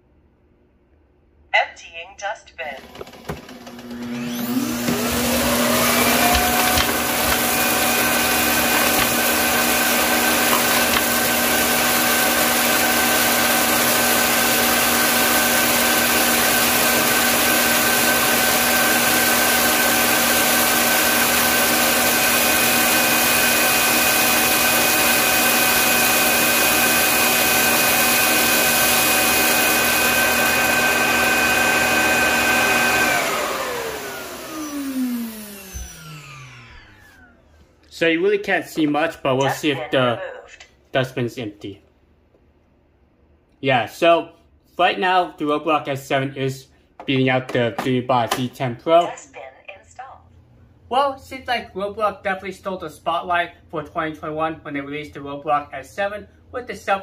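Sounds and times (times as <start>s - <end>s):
suction motor whining: 2.8s - 37.6s.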